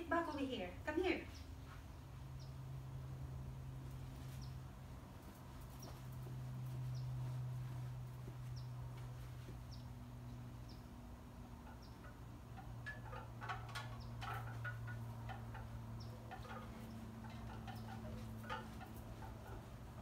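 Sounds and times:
bird chirping: 2.3s - 2.7s, 5.6s - 19.7s.

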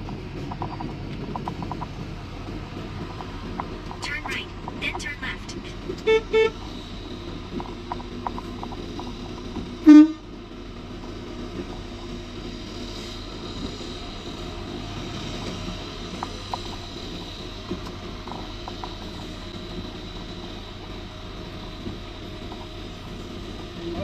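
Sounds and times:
vehicle rumble: 0.0s - 24.0s
car horn toot: 6.0s - 6.6s, 9.9s - 10.2s.

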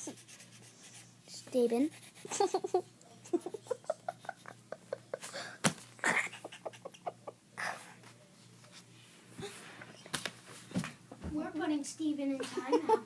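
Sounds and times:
person giggling: 2.3s - 8.0s.

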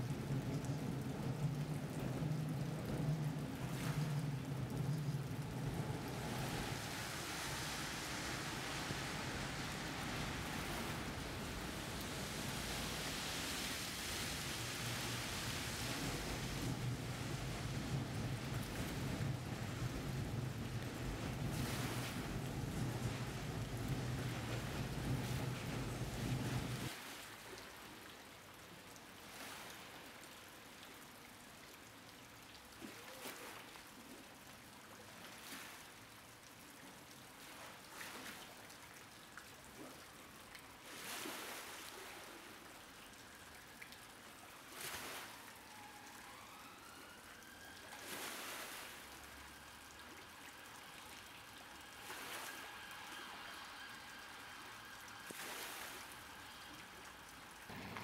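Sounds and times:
river water lapping on steps: 0.0s - 27.9s, 37.2s - 45.8s, 46.5s - 58.0s
siren: 13.6s - 26.9s, 43.0s - 58.0s.

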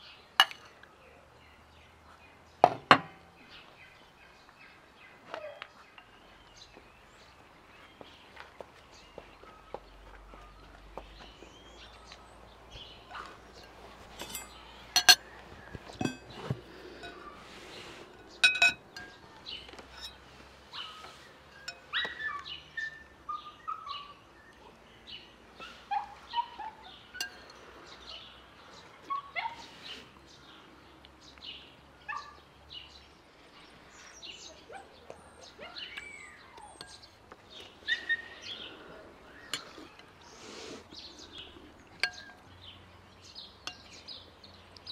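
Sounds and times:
bowls and spoons clinking: 0.4s - 0.8s, 13.0s - 20.2s, 21.5s - 22.1s, 27.2s - 27.6s, 36.8s - 37.2s, 39.5s - 40.2s, 41.4s - 42.5s, 43.6s - 44.0s
bird chirps: 34.0s - 44.9s.

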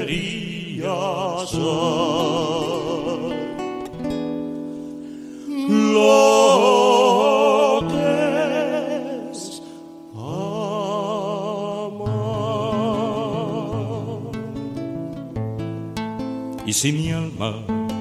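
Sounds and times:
person singing with vibrato: 0.0s - 4.0s, 5.1s - 14.8s
plucked guitar: 0.0s - 18.0s.

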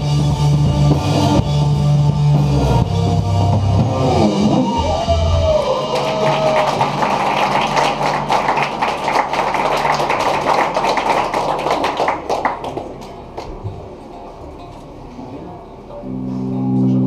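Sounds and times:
drums: 0.0s - 8.8s
electric guitars: 0.0s - 10.8s.

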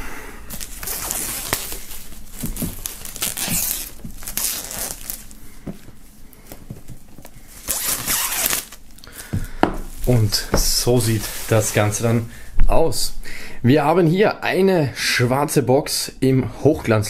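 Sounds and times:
plastic film crinkling and tearing: 0.5s - 5.4s, 7.2s - 9.2s, 9.9s - 12.2s.

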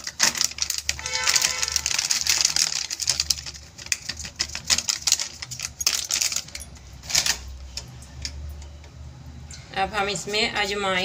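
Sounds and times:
plastic packet crinkling: 0.0s - 7.5s.

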